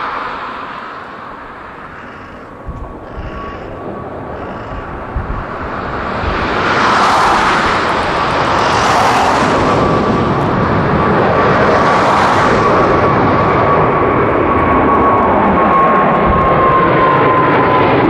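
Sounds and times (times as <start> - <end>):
high jet whine: 0.0 - 18.0
jet engine roar: 0.0 - 18.0.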